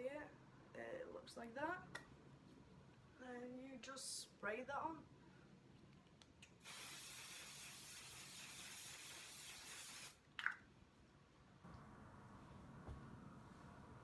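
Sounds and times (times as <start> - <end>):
spray hiss: 6.6 - 10.2.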